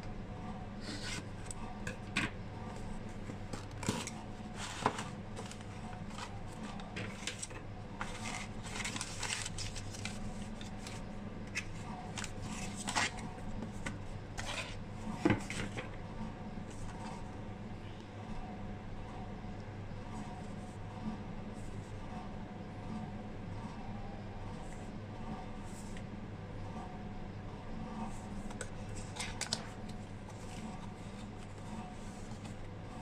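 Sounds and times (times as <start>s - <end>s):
low background hum: 0.0s - 33.0s
packing paper rustling: 3.4s - 13.3s.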